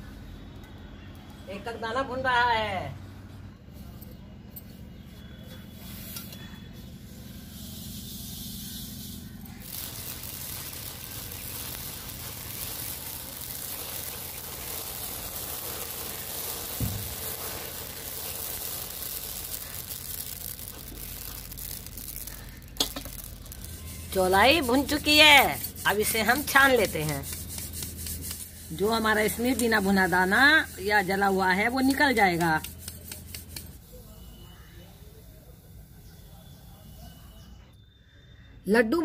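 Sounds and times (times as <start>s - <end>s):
low steady hum: 2.8s - 32.1s
grains popping and crackling: 8.5s - 33.8s.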